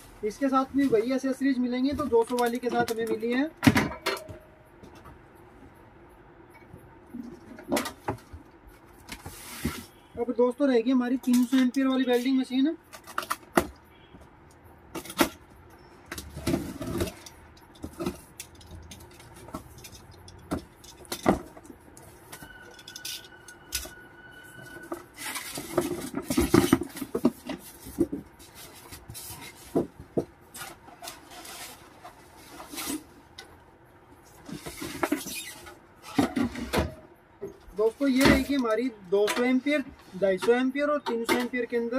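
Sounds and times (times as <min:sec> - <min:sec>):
packing rustling and scraping: 0:08.2 - 0:10.2, 0:16.2 - 0:33.3.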